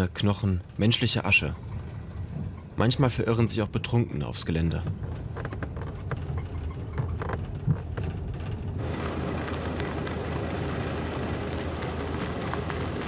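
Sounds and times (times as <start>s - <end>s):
car engine hum: 0.1s - 13.0s
road hiss: 8.8s - 13.0s.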